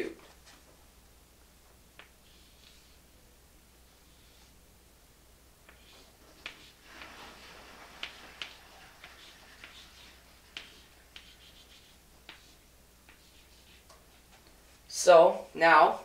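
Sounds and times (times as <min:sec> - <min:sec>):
chalk scratching: 0:02.0 - 0:03.0, 0:03.9 - 0:04.6, 0:05.7 - 0:14.5
chalk tapping on chalkboard: 0:05.6 - 0:14.4.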